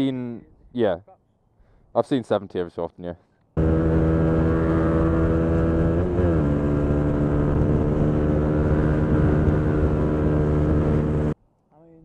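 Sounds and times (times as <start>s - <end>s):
motorcycle engine running hard: 3.6s - 11.4s.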